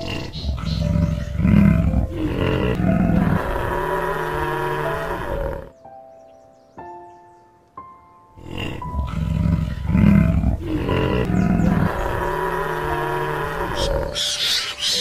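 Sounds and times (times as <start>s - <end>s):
big cat roaring and growling: 0.0s - 5.7s, 8.4s - 14.2s
background music: 0.0s - 15.0s.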